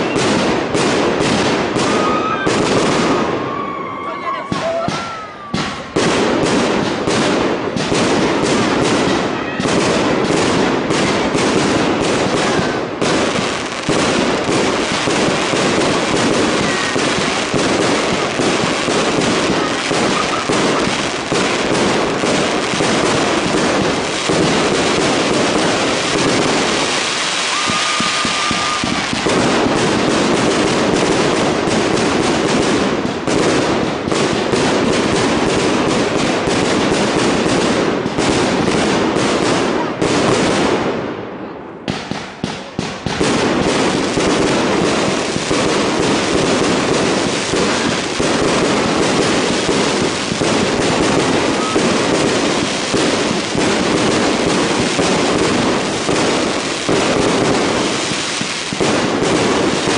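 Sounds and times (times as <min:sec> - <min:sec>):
firework whistle: 0:00.0 - 0:00.4, 0:01.7 - 0:06.0, 0:14.7 - 0:21.7, 0:25.4 - 0:29.7, 0:51.1 - 0:53.3
fireworks bursting and crackling: 0:00.0 - 0:59.9.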